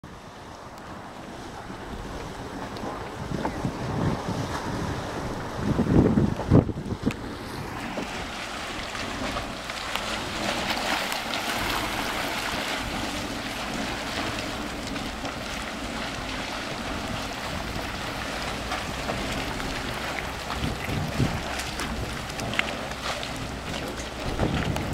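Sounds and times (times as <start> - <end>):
hot spring water churning: 0.0 - 24.9
low rumble: 0.1 - 24.9.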